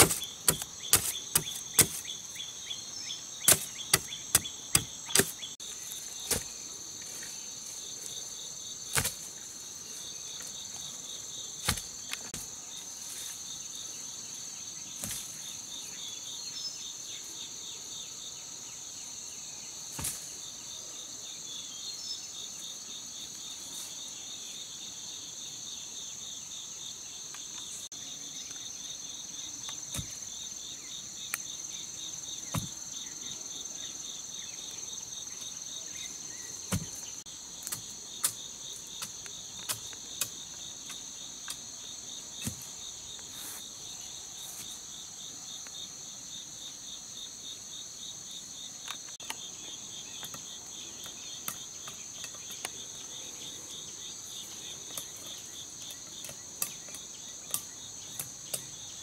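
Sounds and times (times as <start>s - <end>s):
machete chopping wood: 0.0s - 2.1s, 3.4s - 5.5s, 8.9s - 9.3s, 11.6s - 12.5s, 32.5s - 32.8s, 36.7s - 37.0s
insects chirping: 0.0s - 59.0s.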